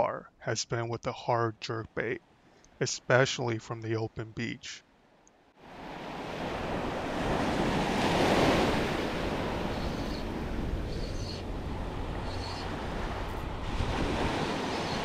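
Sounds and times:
ocean surf washing onto beach: 5.6s - 15.0s
wind buffeting microphone: 6.5s - 14.9s.

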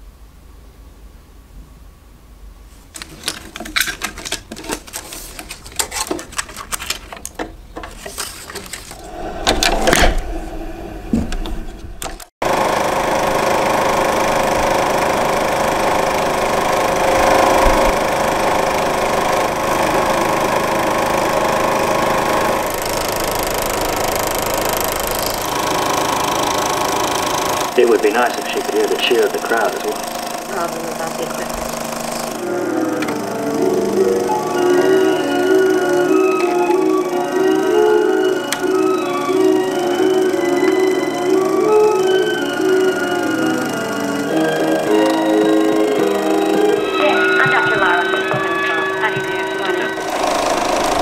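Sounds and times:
film clicking and rattling: 3.0s - 9.0s
film projector running: 3.0s - 9.0s, 12.0s - 51.0s.

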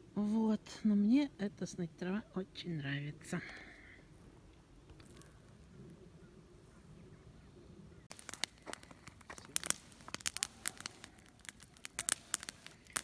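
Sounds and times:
campfire crackling: 2.9s - 13.0s.

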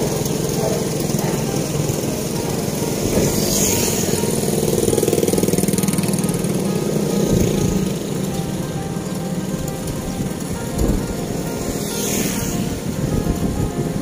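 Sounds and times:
motorcycle engines running: 0.0s - 14.0s.

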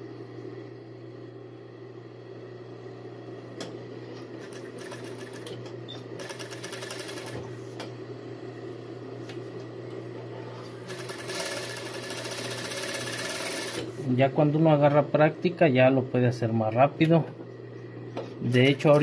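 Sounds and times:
steady hum: 0.0s - 19.0s
industrial sewing machine stitching: 6.2s - 7.4s, 10.9s - 13.9s.

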